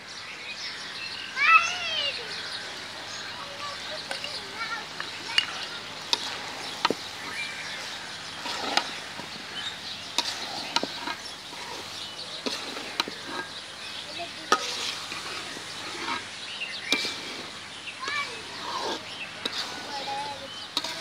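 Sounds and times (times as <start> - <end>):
sizzling in hot pan: 3.2 - 21.0
metal spatula scraping pan: 5.2 - 21.0.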